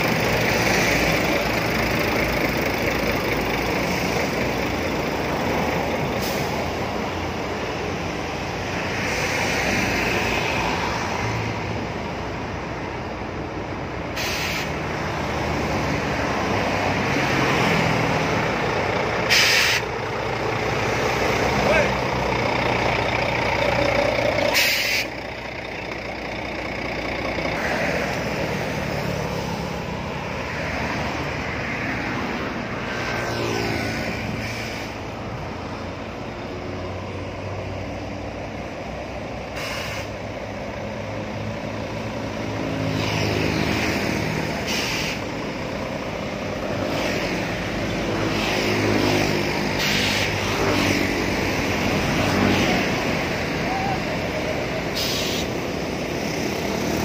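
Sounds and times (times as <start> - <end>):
truck and traffic engines droning: 0.0 - 57.0
air brake hiss: 6.2 - 6.7, 14.2 - 14.8, 19.3 - 19.9, 24.5 - 25.2, 34.4 - 35.0, 39.6 - 40.2, 44.6 - 45.3, 49.8 - 50.4, 54.9 - 55.6.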